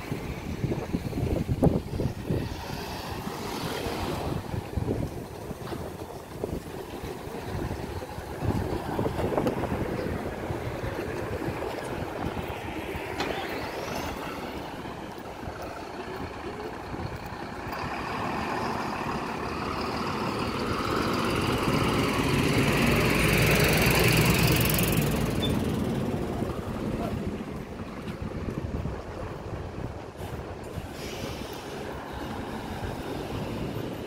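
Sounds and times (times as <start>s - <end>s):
street traffic: 0.0s - 34.0s
vehicle engine whine passing: 7.1s - 28.0s.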